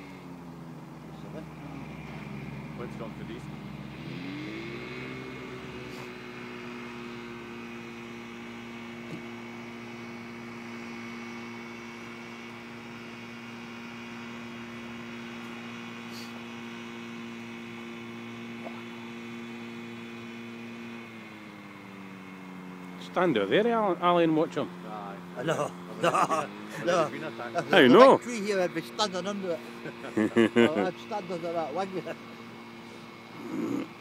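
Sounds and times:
distant aircraft engine droning: 0.0s - 34.0s.

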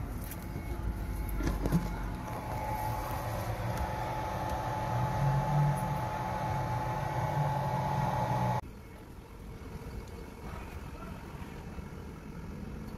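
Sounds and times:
electrical hum with high whine: 0.0s - 12.9s
faint outdoor background: 0.0s - 12.9s.

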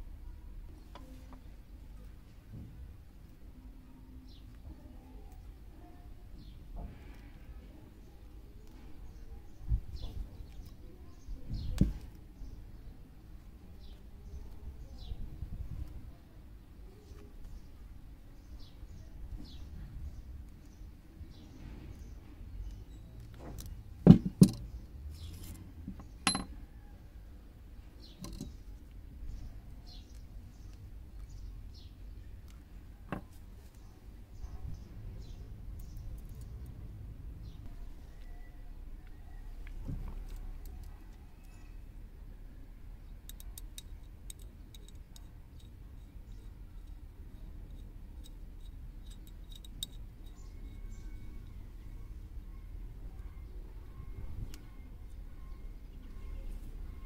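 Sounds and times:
metallic clink with ring: 26.2s - 26.5s
small metal parts clicking: 43.2s - 51.6s.

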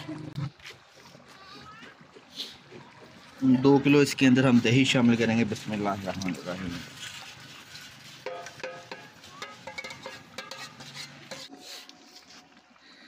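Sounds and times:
metal spoon scraping a metal pot: 8.3s - 12.3s.

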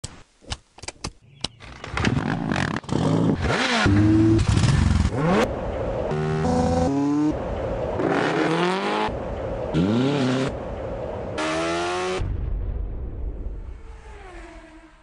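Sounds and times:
motorcycle engine revving: 2.0s - 7.4s, 8.0s - 10.6s.

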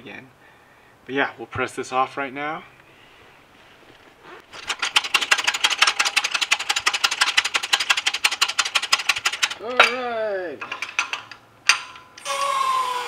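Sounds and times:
hydraulic jack clicking and rattling: 4.5s - 10.0s, 10.6s - 12.3s.

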